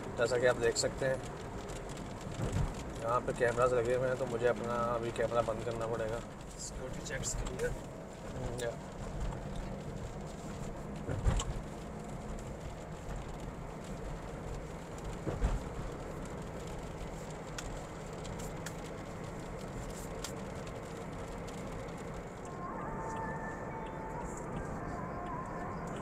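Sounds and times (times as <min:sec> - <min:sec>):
car engine and road noise: 0:00.0 - 0:26.0.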